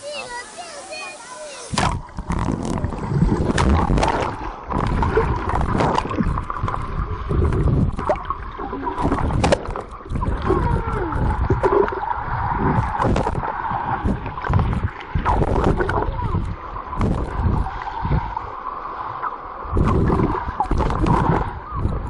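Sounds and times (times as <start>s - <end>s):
underwater churning and bubbling: 1.7s - 22.0s
underwater thumps from kicking: 1.8s - 6.7s, 9.0s - 10.2s, 12.7s - 13.4s.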